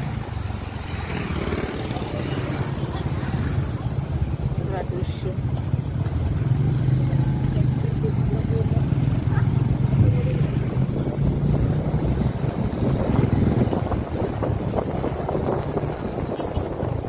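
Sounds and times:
vehicle engine droning: 0:00.0 - 0:17.0
wind buffeting microphone: 0:08.8 - 0:17.0.

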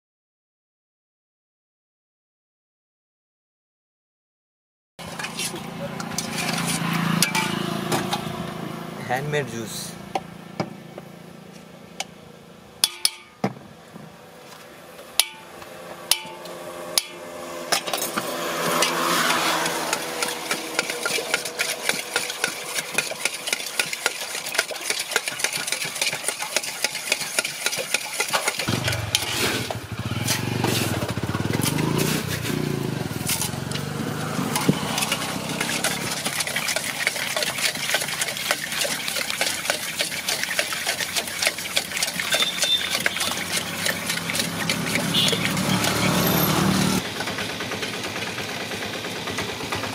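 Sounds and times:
glass and metal clinks: 0:12.8 - 0:13.4
spoon stirring in a glass: 0:19.9 - 0:28.7, 0:34.6 - 0:46.4.

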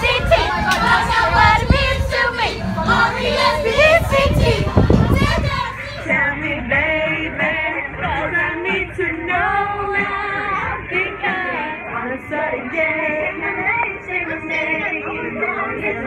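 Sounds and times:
men and women singing together: 0:00.0 - 0:15.1
music: 0:00.0 - 0:16.0.

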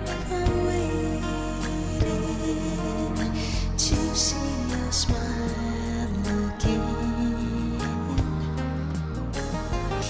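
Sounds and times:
acoustic guitar ballad: 0:00.0 - 0:10.0
sustained low notes: 0:00.0 - 0:10.0.

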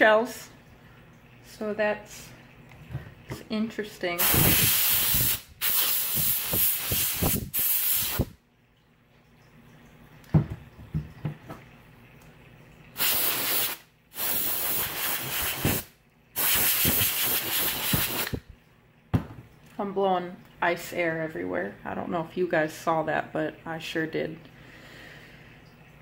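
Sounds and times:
compressed air can hissing: 0:04.2 - 0:08.4, 0:13.0 - 0:18.4
knock: 0:10.3 - 0:11.6, 0:19.1 - 0:19.4.

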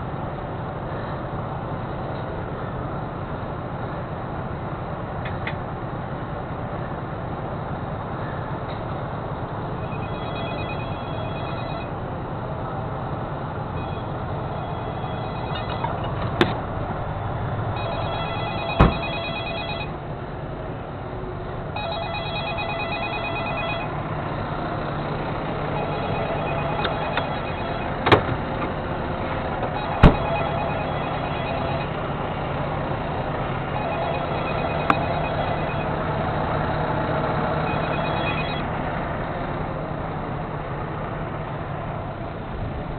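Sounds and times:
truck diesel engine idling: 0:00.0 - 0:42.9
electronic ringing: 0:09.8 - 0:12.0, 0:13.8 - 0:16.2, 0:17.7 - 0:20.0, 0:21.8 - 0:24.0, 0:25.7 - 0:28.0, 0:29.7 - 0:32.1, 0:33.7 - 0:36.2, 0:37.6 - 0:38.7.

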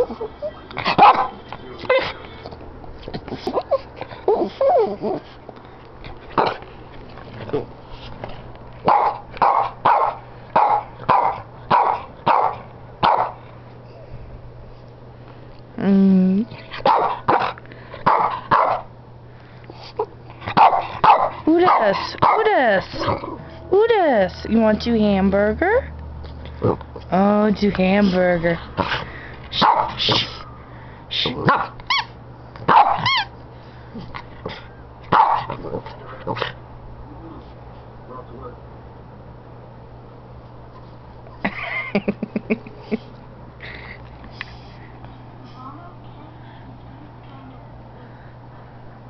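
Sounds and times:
small dog barking: 0:00.9 - 0:01.4, 0:08.8 - 0:13.4, 0:16.8 - 0:18.9, 0:20.5 - 0:22.5, 0:29.6 - 0:30.0, 0:31.4 - 0:32.1, 0:32.7 - 0:33.3, 0:35.1 - 0:35.6
dog whining: 0:03.2 - 0:05.3, 0:31.8 - 0:32.2, 0:32.8 - 0:33.4.

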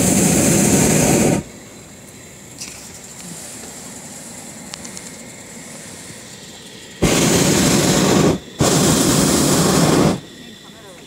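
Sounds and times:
propane burner roaring: 0:00.0 - 0:11.0.

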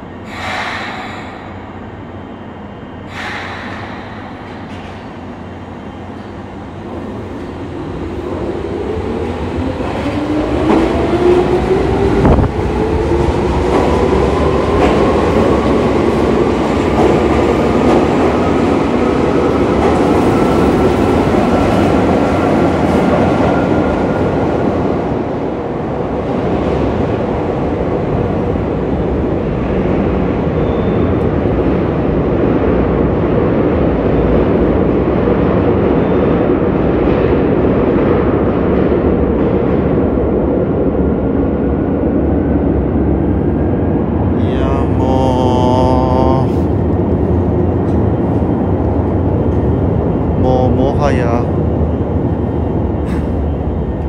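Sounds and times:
wheels rumbling on rail: 0:00.0 - 0:54.0.

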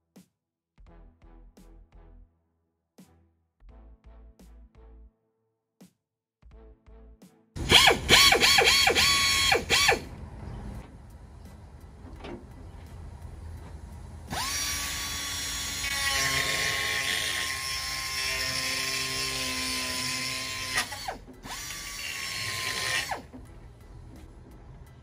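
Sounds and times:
die grinder whining: 0:07.6 - 0:10.1, 0:14.3 - 0:23.3
burr grinding metal: 0:07.6 - 0:25.0.

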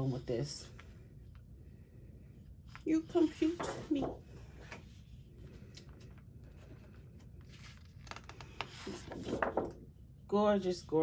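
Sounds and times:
paper rustling and sliding: 0:02.7 - 0:09.8.

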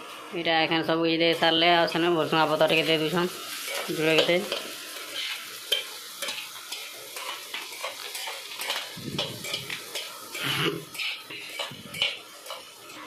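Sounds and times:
food sizzling in a pan: 0:00.0 - 0:13.0
spatula scraping a pan: 0:03.5 - 0:13.0.

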